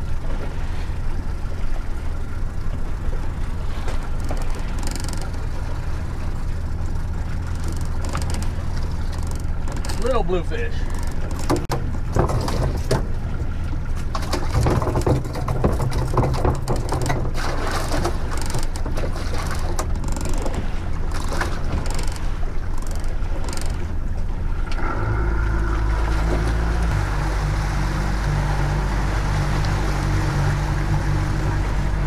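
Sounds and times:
outboard engine running: 0.0 - 32.0
knocks and clatter of fish: 3.8 - 6.0, 6.8 - 25.0.

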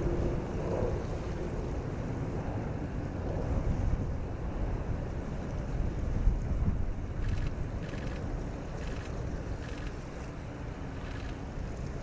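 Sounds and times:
jet engines rumbling: 0.0 - 12.0
wind buffeting microphone: 0.0 - 12.0.

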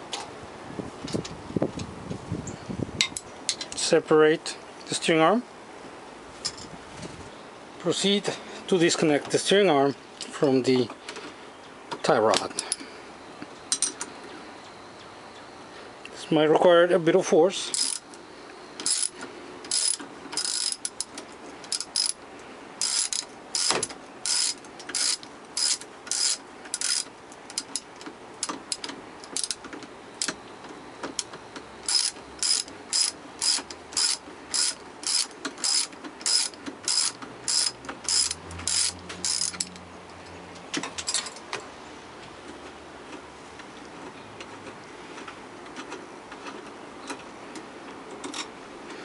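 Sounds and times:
socket ratchet clicking: 17.8 - 18.2, 18.8 - 21.1, 21.7 - 22.2, 22.8 - 29.6, 31.8 - 39.8.

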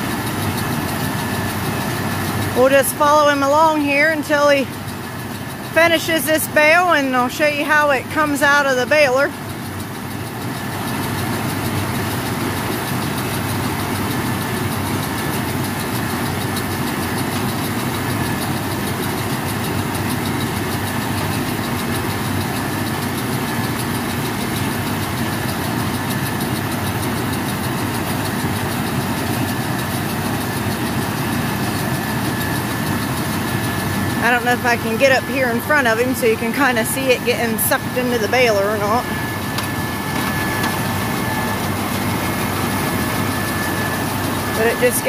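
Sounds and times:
baler mechanical rattle: 0.0 - 45.0
tractor engine running under load: 0.0 - 45.0
faint high whine: 33.6 - 45.0.

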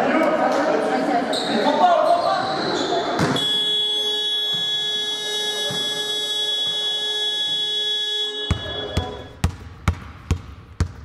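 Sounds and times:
scoreboard buzzer long tone: 3.4 - 9.4
basketball bouncing on hardwood: 8.5 - 11.0.

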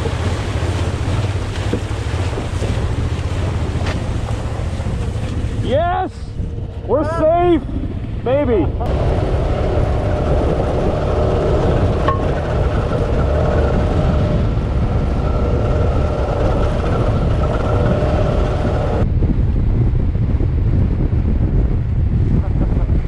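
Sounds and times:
road rumble: 0.0 - 23.0
wind rumble on microphone: 0.0 - 23.0
motorcycle engine running: 6.4 - 19.0.

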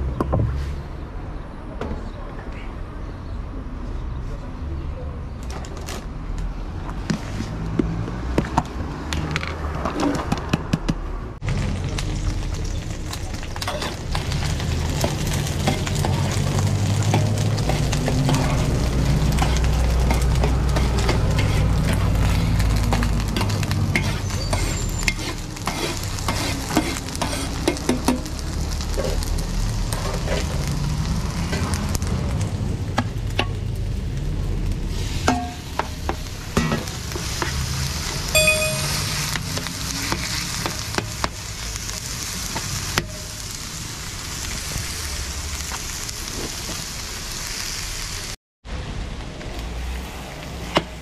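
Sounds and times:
vegetables sizzling in a pan: 11.5 - 48.4
metal spatula scraping a pan: 13.6 - 28.2.

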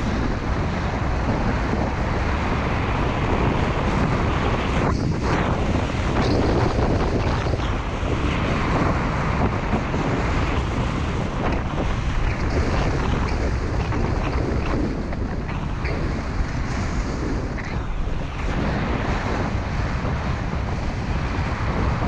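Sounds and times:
wind buffeting microphone: 0.0 - 22.0.

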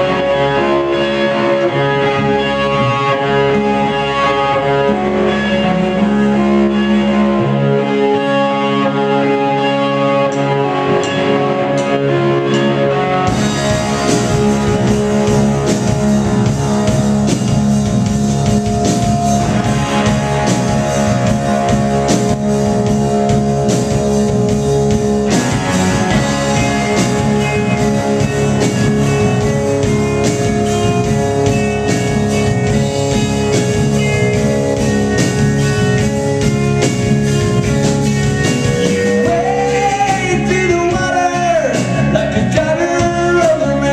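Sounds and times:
electric guitars sustained notes: 0.0 - 43.9
live rock band playing: 0.0 - 43.9
drums and cymbals: 10.4 - 43.9.

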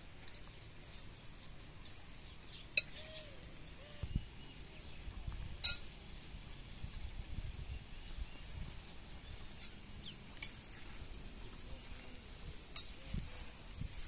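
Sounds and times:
spoons scraping china plates: 12.7 - 13.6.

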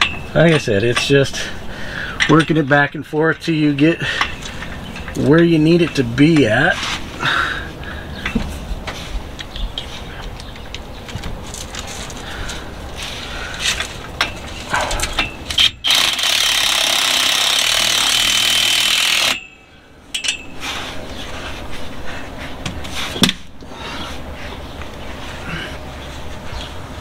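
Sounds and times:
clicks and knocks of tools: 13.5 - 15.8, 20.2 - 20.4
power driver running bolt: 15.5 - 19.4.

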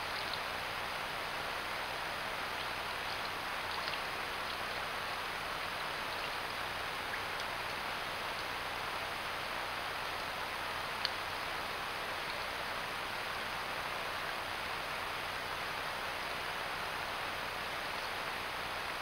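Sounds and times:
faint small ticks: 0.0 - 0.4, 2.6 - 4.8, 7.3 - 8.5, 11.0 - 11.2
outdoor background hiss: 0.0 - 19.0.

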